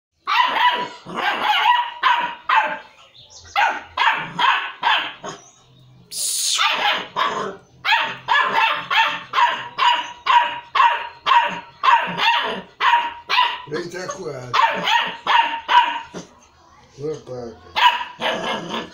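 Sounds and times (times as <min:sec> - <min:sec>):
puppy barking: 0:00.2 - 0:02.9, 0:03.5 - 0:05.4, 0:06.5 - 0:16.4, 0:17.7 - 0:18.9
hissing falling sound: 0:06.1 - 0:06.7.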